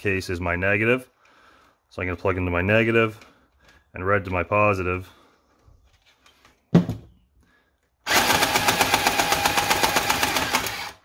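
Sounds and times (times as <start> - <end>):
toy blaster mechanism rattling: 8.1 - 11.0.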